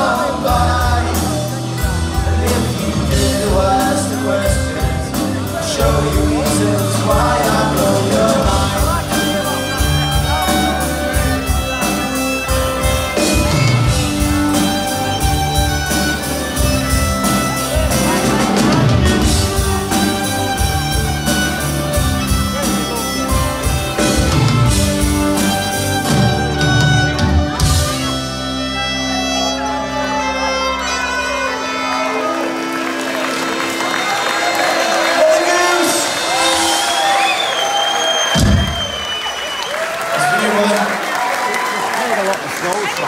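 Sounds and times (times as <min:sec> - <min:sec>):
steady driving drumbeat: 0:00.0 - 0:28.4, 0:35.3 - 0:39.4
folk-punk band playing: 0:00.0 - 0:43.0.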